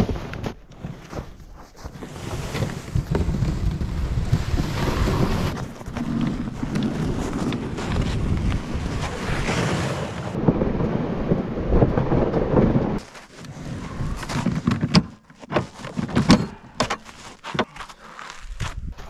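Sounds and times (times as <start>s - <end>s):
sled scraping over snow: 0.0s - 17.5s
wind buffeting microphone: 2.8s - 13.0s.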